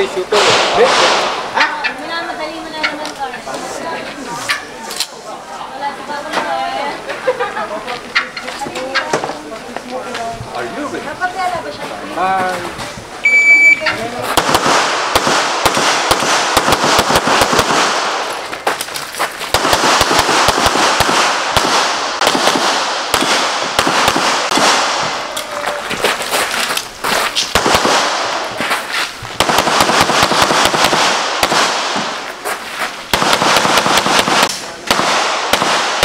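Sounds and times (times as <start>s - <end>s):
pistol shots echoing: 14.4s - 18.4s, 19.5s - 25.3s, 27.5s - 28.5s, 29.4s - 32.2s, 33.1s - 36.0s.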